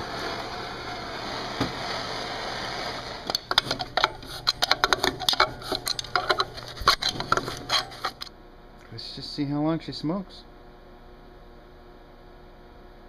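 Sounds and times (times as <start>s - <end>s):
garbage disposal humming: 0.0s - 8.9s
metal parts clattering: 3.3s - 8.3s.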